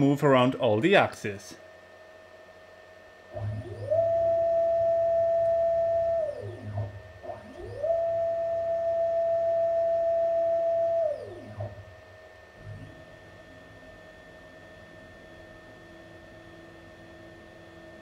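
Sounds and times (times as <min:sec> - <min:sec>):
low hum: 0:03.3 - 0:14.0
motor whine rising and falling: 0:03.3 - 0:18.0.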